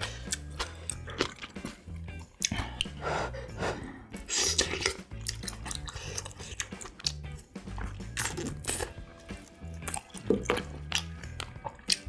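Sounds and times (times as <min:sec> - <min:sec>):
chewing and mouth sounds: 0:00.0 - 0:03.0, 0:04.2 - 0:12.0
crunchy slurpy eating burst: 0:07.8 - 0:09.0.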